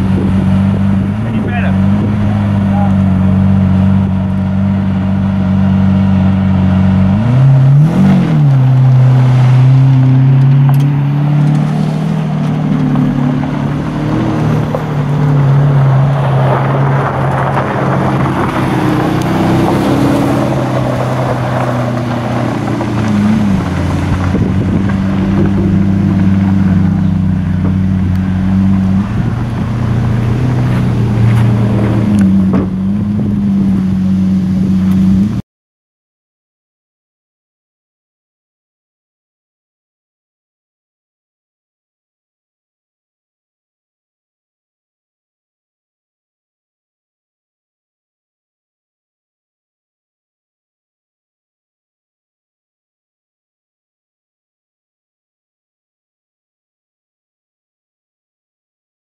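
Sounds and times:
car engine pulling away: 0.0 - 35.4
car engines idling: 0.0 - 35.4
tyres on gravel: 0.0 - 35.4.

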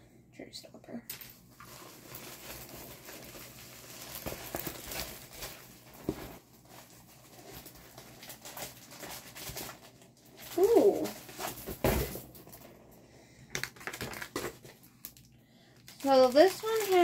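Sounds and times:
plastic sheet rustling and crinkling: 1.4 - 12.6, 13.6 - 17.0.

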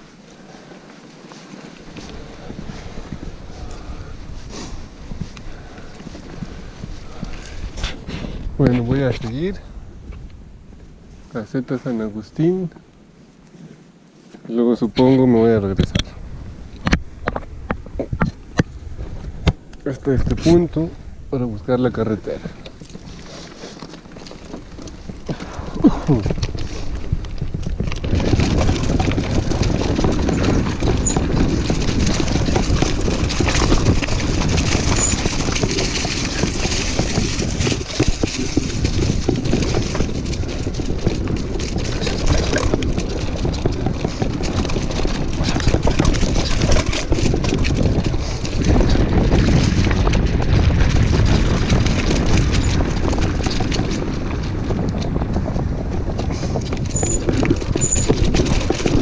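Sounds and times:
bike rattling over bumps: 0.0 - 13.8, 14.8 - 59.0
bike tyres crunching on dirt: 0.0 - 59.0
wind rumbling on microphone: 0.0 - 59.0.

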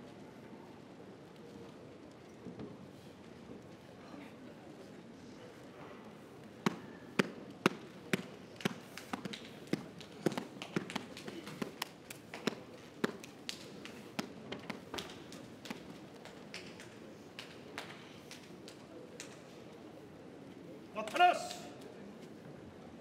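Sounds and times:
people clapping: 6.7 - 19.4.

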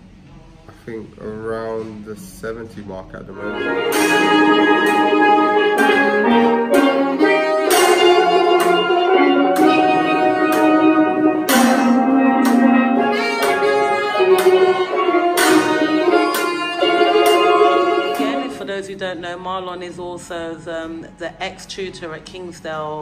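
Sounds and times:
steel band playing: 3.3 - 20.1.

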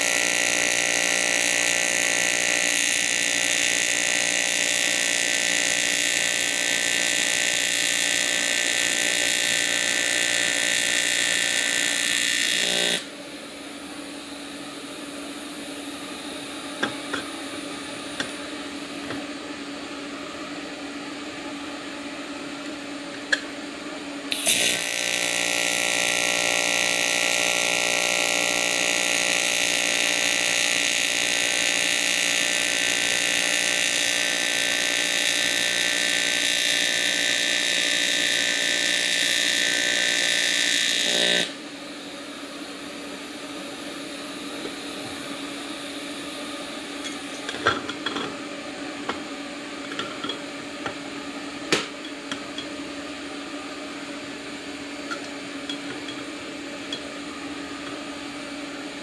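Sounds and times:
welding arc buzzing: 0.0 - 19.4, 24.3 - 48.3.

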